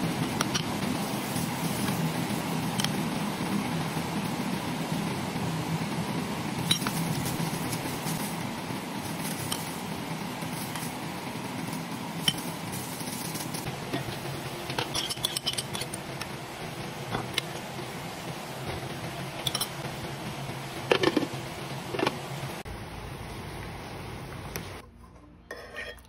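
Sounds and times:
pot lid clanking: 13.9 - 16.0.

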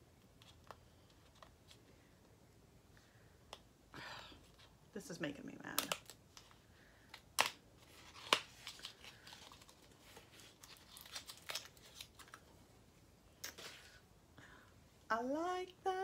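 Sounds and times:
box crinkling and clicks: 7.1 - 12.4.

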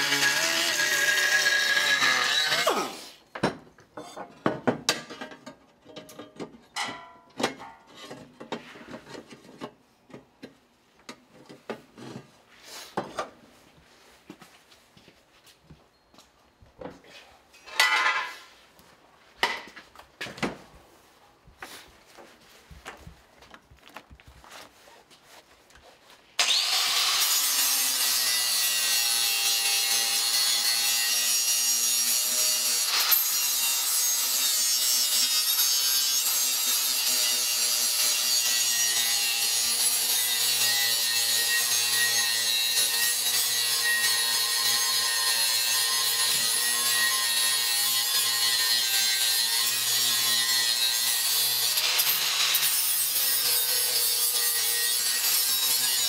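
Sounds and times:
grinder grinding sheet metal: 0.0 - 3.2, 26.4 - 56.0.

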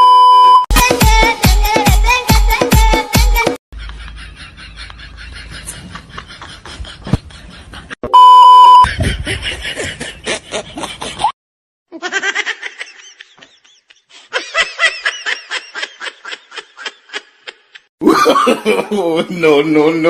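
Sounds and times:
electronic beep: 0.0 - 0.6, 8.1 - 8.9
bursts of laughter: 12.0 - 19.2.

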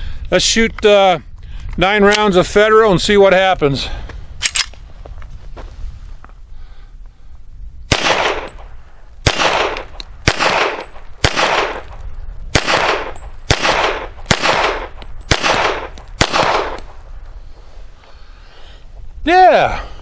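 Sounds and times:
pistol shots with echo: 7.9 - 17.0.

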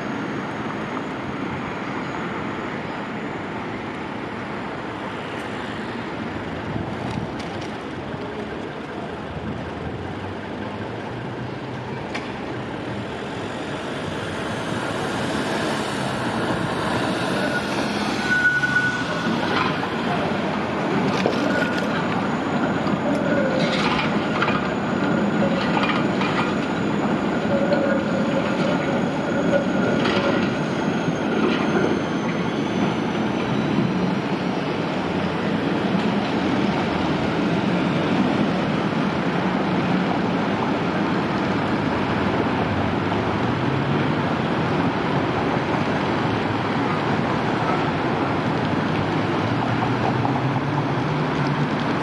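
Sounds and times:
street noise: 0.0 - 52.0
tram motor hum rising: 0.0 - 52.0
tram wheels clacking on rail joints: 11.7 - 52.0
high electric whine: 12.4 - 32.1
wheels squealing on track: 13.0 - 34.6.

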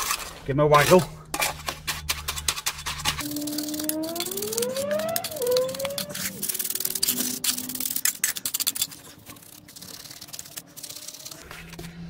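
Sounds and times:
trowel scraping concrete: 0.0 - 11.9
drawn-out pitched sound: 3.2 - 8.4.

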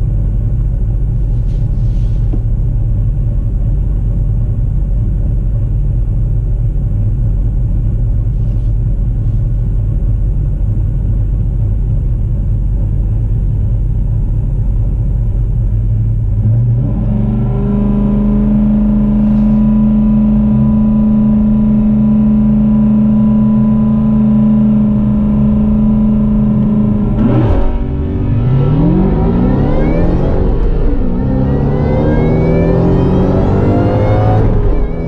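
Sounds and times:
car engines revving and accelerating: 16.1 - 35.0.

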